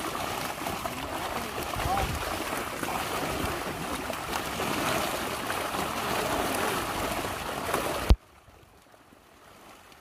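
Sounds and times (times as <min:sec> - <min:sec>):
fish thrashing at the surface: 0:00.0 - 0:08.2
water splashing and churning: 0:00.0 - 0:10.0.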